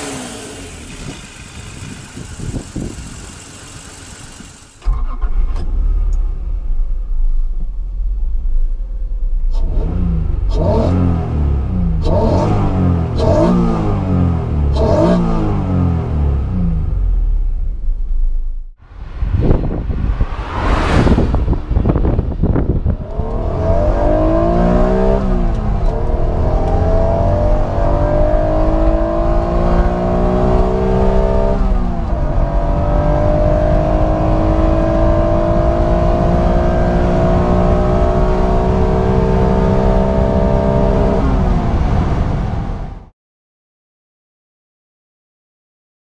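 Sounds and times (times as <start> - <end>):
car engine revving under acceleration: 0.0 - 4.8, 9.5 - 17.4, 22.8 - 42.8
car pass-by: 18.8 - 26.0.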